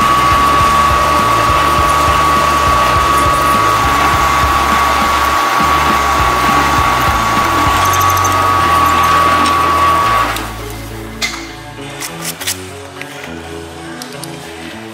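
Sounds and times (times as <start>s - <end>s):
drill press whining: 0.0s - 10.6s
background music: 0.0s - 14.9s.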